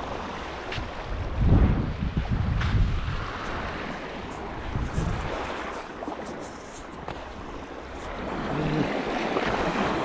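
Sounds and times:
lake waves on shore: 0:00.0 - 0:10.0
wind buffeting microphone: 0:00.0 - 0:10.0.

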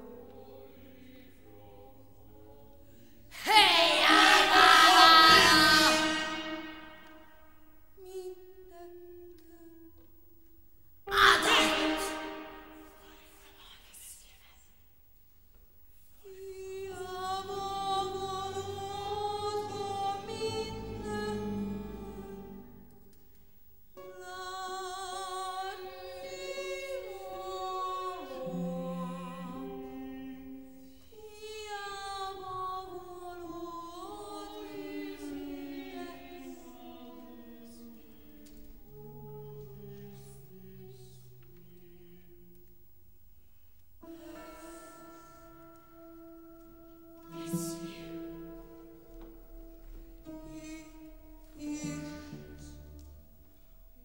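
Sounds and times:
voices and chamber ensemble: 0:00.0 - 0:10.0, 0:11.1 - 0:14.3, 0:16.2 - 0:42.8.

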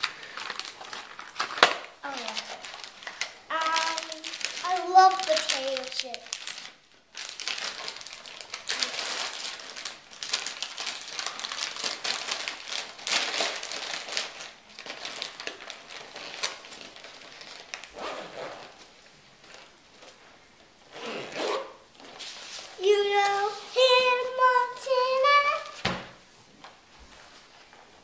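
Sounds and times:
plastic snack packets rustling: 0:00.0 - 0:18.0.

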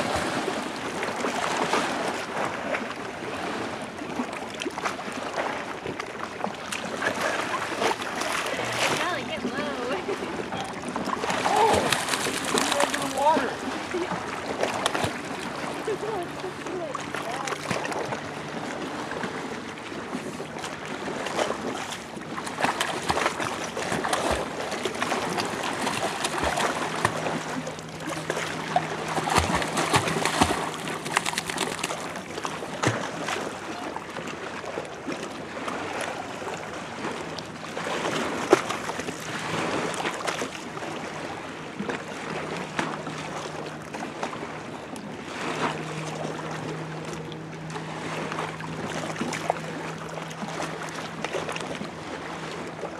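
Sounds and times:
dog splashing through water: 0:11.0 - 0:15.4, 0:22.5 - 0:32.2.

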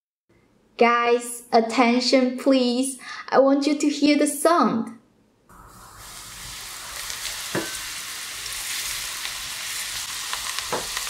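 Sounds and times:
hot oil sizzling on spices: 0:05.5 - 0:11.0.

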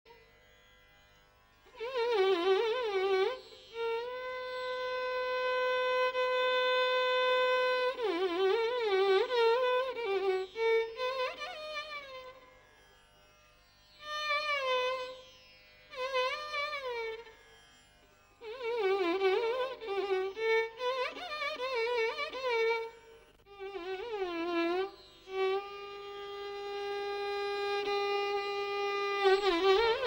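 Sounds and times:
violin playing ornamented phrases: 0:01.7 - 0:12.5, 0:18.3 - 0:30.0.

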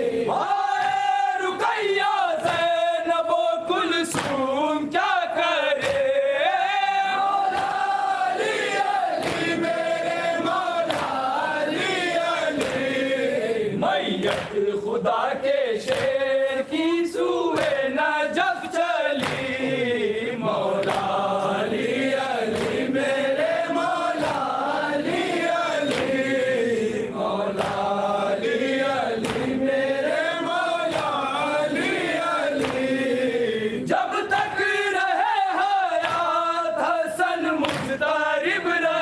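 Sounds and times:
sharp rhythmic beats: 0:00.0 - 0:38.9
men chanting together: 0:00.0 - 0:39.0.

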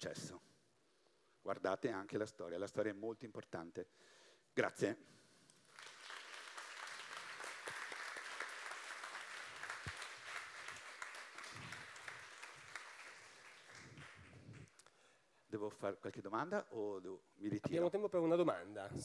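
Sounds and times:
audience applauding: 0:05.7 - 0:14.7.

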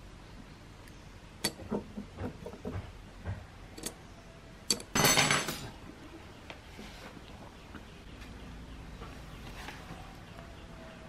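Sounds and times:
metal clicks of tweezers and gears: 0:03.8 - 0:04.0.

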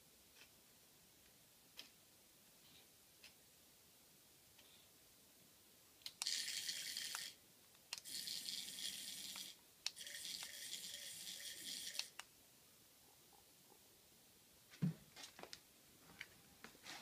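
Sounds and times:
toy snake rattling: 0:06.1 - 0:07.4, 0:08.0 - 0:12.2.

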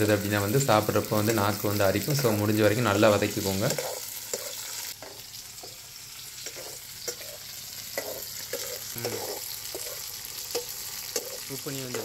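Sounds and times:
food sizzling in oil: 0:00.0 - 0:12.0
steel ladle scraping a pan: 0:03.5 - 0:05.8, 0:06.4 - 0:12.0.

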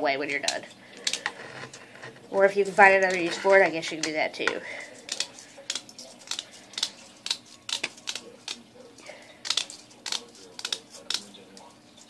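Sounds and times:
scissors snipping mesh: 0:05.1 - 0:08.6, 0:09.4 - 0:11.6.

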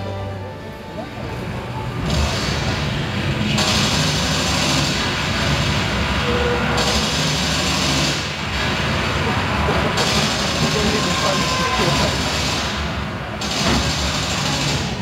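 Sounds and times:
battle sound effects roaring: 0:09.1 - 0:12.8.

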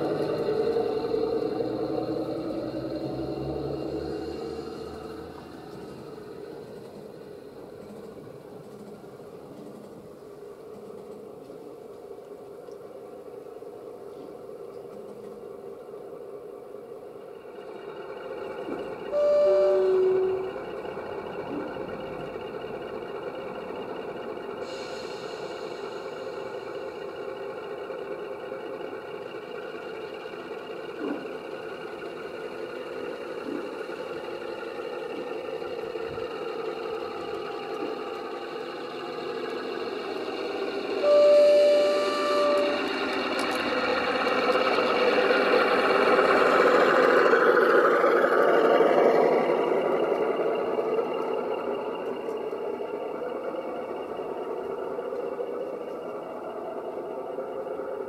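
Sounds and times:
steady hum: 0:00.0 - 0:48.6
model locomotive running: 0:00.0 - 0:58.0
two-tone diesel horn: 0:19.1 - 0:20.7, 0:40.9 - 0:43.6.

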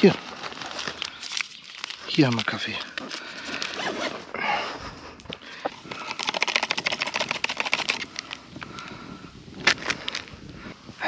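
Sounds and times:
packaging rustling and clicking: 0:00.0 - 0:04.3, 0:05.2 - 0:08.4
rapid clicks: 0:05.7 - 0:08.4.

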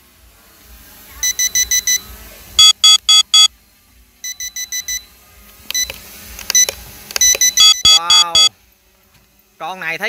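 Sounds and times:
electronic warning beeps: 0:01.2 - 0:02.0, 0:02.6 - 0:03.5, 0:06.6 - 0:08.5.

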